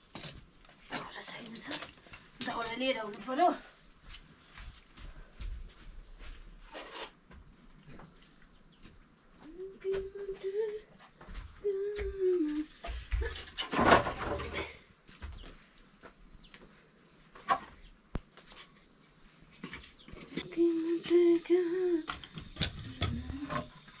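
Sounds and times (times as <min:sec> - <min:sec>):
firewood dropped with a clatter: 0:13.3 - 0:14.8.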